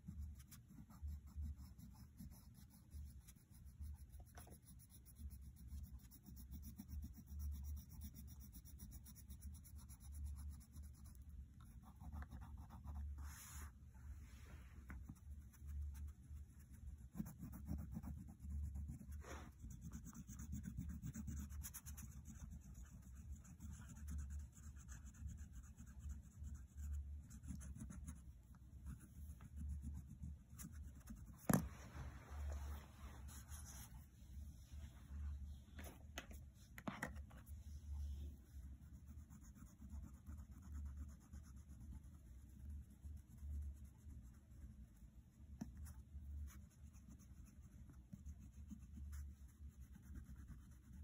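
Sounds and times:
crayon scratching on paper: 0:00.0 - 0:13.8, 0:14.9 - 0:31.7, 0:33.2 - 0:34.0, 0:38.8 - 0:44.6, 0:45.6 - 0:51.0.

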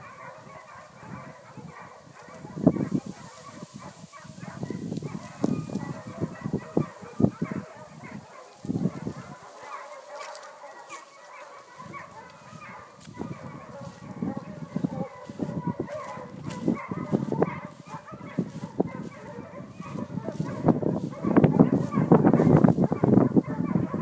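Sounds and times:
dogs barking: 0:00.0 - 0:24.0.

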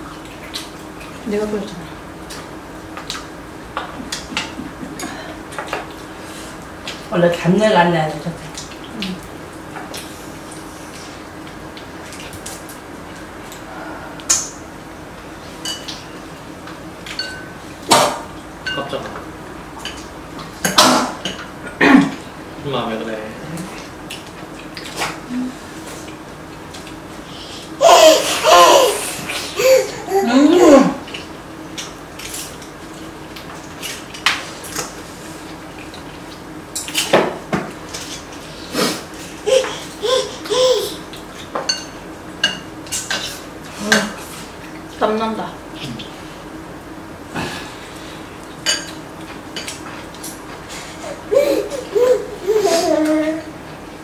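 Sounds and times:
utensils clinking against bowls: 0:17.1 - 0:17.6, 0:18.6 - 0:19.2, 0:41.6 - 0:44.2, 0:48.6 - 0:49.8.

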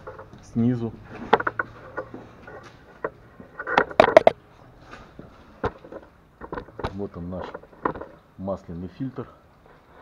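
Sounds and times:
handling knocks and clatters: 0:01.1 - 0:08.3.

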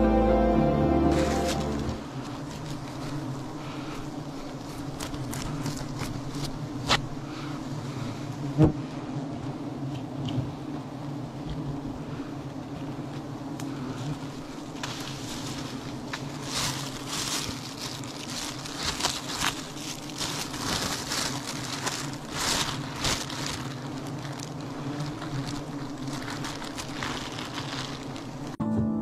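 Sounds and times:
honeybees buzzing: 0:00.0 - 0:28.6
plastic bag rustling and crackling: 0:01.0 - 0:07.1, 0:14.0 - 0:28.6.

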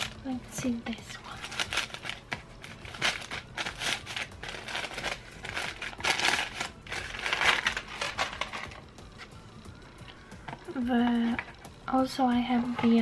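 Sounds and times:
packing paper crinkling: 0:01.1 - 0:08.9.

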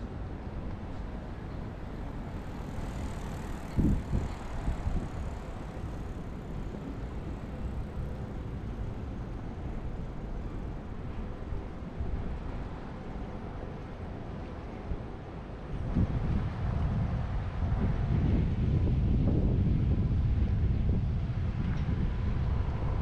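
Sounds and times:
city traffic rumble: 0:00.0 - 0:23.0.

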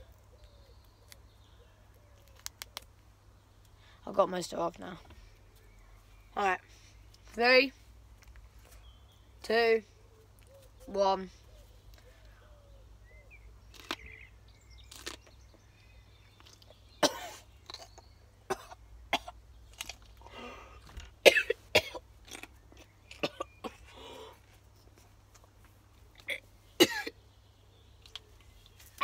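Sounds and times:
boy coughing: 0:17.0 - 0:17.4, 0:18.5 - 0:19.4, 0:21.2 - 0:22.0, 0:26.2 - 0:27.2
breathy sounds: 0:20.2 - 0:21.0, 0:23.8 - 0:24.6.

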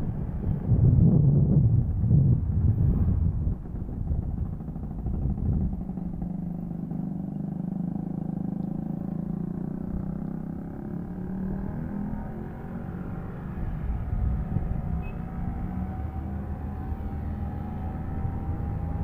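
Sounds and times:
wind buffeting microphone: 0:00.0 - 0:06.9, 0:12.6 - 0:19.0
two-stroke scooter engine running: 0:03.8 - 0:10.6.

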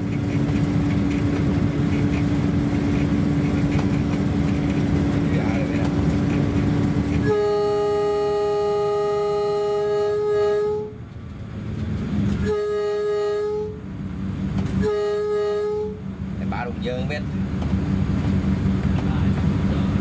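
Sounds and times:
low rumble of train: 0:00.0 - 0:20.0
train horn blasts: 0:07.2 - 0:11.0, 0:12.4 - 0:13.9, 0:14.7 - 0:16.1.

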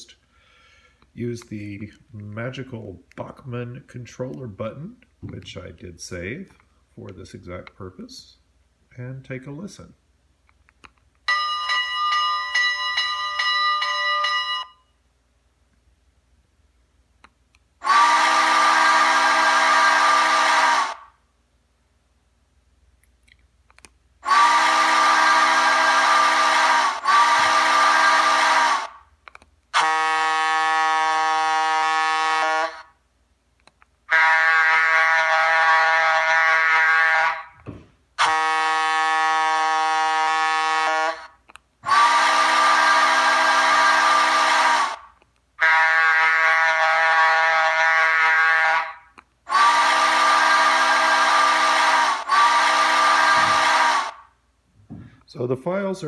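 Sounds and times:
steam whistle through small speaker: 0:17.8 - 0:21.0, 0:24.2 - 0:28.9, 0:29.8 - 0:32.9, 0:34.1 - 0:37.5, 0:38.2 - 0:45.0, 0:45.6 - 0:54.2.

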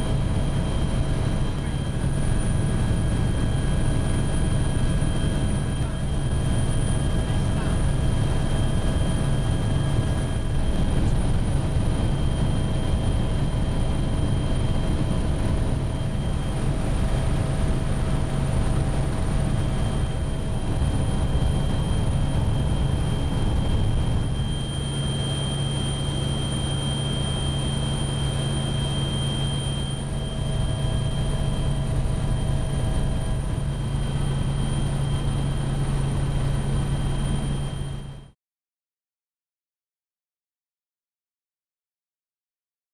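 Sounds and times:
aircraft engines droning: 0:00.0 - 0:38.3
whining tones: 0:18.4 - 0:38.1.

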